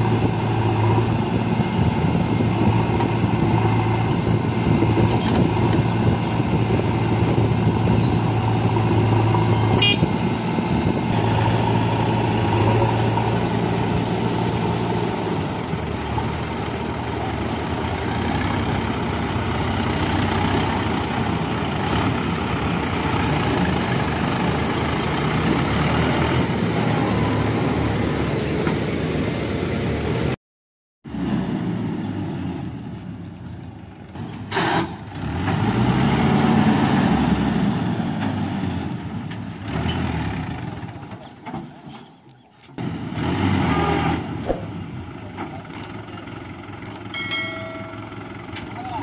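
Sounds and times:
diesel engines running: 0.0s - 30.4s, 31.1s - 49.0s
metal clank: 47.2s - 48.3s.

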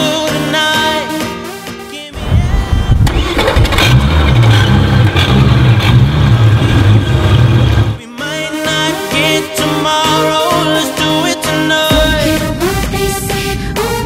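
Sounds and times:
outboard engines revving: 2.2s - 8.0s.

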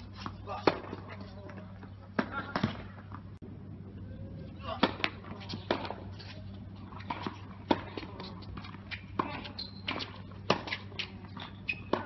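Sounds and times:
rackets hitting tennis ball: 0.2s - 3.2s, 4.6s - 12.0s
shoe squeaks: 8.9s - 12.0s.

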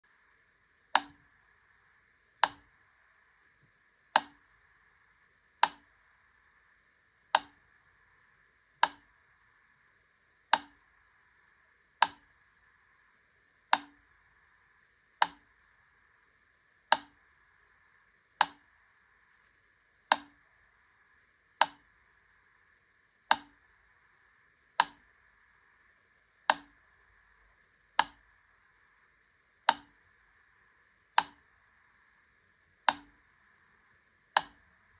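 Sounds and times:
metronome ticking: 0.9s - 1.3s, 2.4s - 2.8s, 4.1s - 4.6s, 5.6s - 6.0s, 7.3s - 7.7s, 8.8s - 9.1s, 10.5s - 10.8s, 12.0s - 12.3s, 13.7s - 14.1s, 15.2s - 15.5s, 16.9s - 17.2s, 18.4s - 18.7s, 20.1s - 20.5s, 21.6s - 21.9s, 23.3s - 23.6s, 28.0s - 28.3s, 29.6s - 30.0s, 31.2s - 31.5s, 32.8s - 33.2s, 34.3s - 34.8s.

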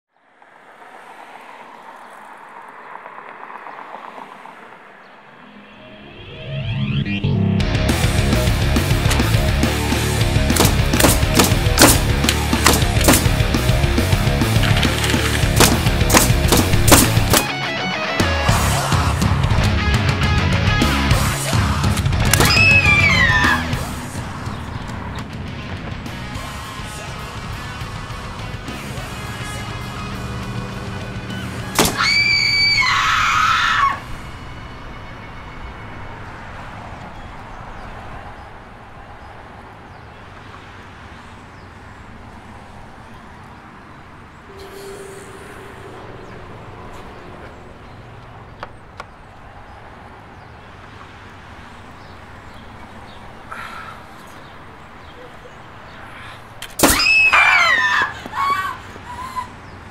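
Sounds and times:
street traffic: 0.0s - 59.9s
shrill high-pitched scream: 22.4s - 23.7s, 31.9s - 34.0s, 56.8s - 59.5s.

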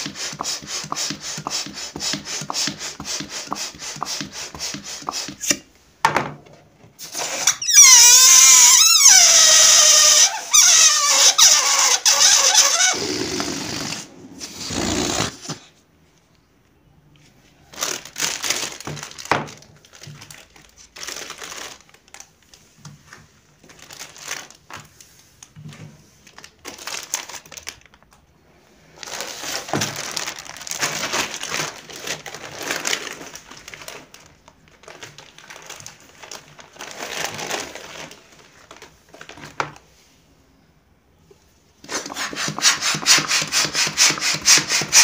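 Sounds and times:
plastic packaging crinkling: 17.6s - 25.6s, 26.2s - 39.8s.

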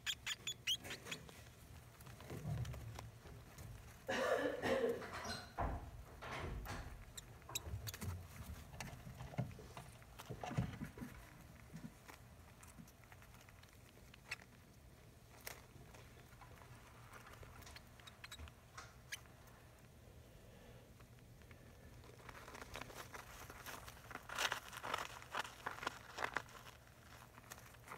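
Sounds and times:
rats rustling in paper: 0.0s - 4.1s, 6.8s - 20.0s, 20.9s - 27.9s
paper crinkling and rustling: 21.8s - 27.9s.

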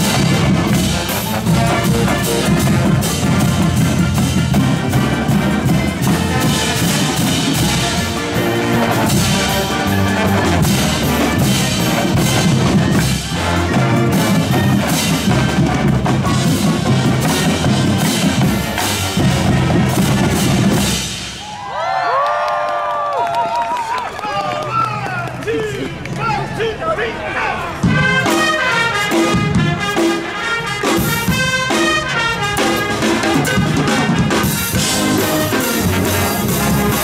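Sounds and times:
pep band playing: 0.0s - 21.6s, 27.6s - 37.0s
voices: 24.2s - 28.1s.

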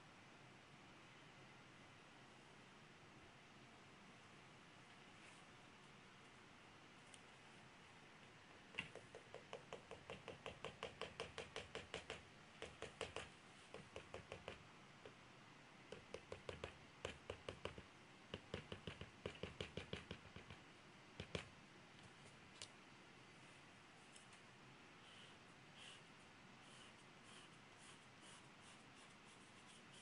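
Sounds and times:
pencil scratching on paper: 25.2s - 30.0s.

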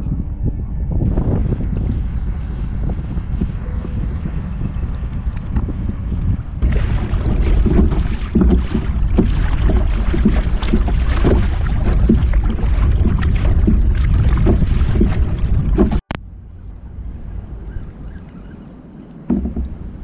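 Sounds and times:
wind buffeting microphone: 0.0s - 20.0s
paddle splashing in water: 6.6s - 16.2s, 19.2s - 20.0s.

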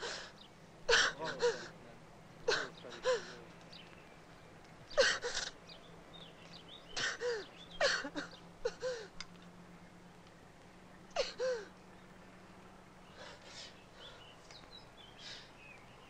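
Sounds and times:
man sobbing: 0.9s - 1.8s, 2.5s - 3.4s, 7.0s - 9.2s, 11.2s - 11.7s.

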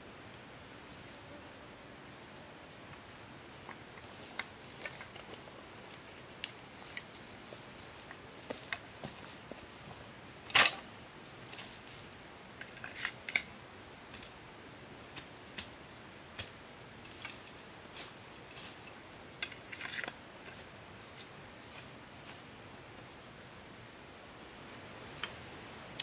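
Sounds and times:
forest insects droning: 0.0s - 26.0s.

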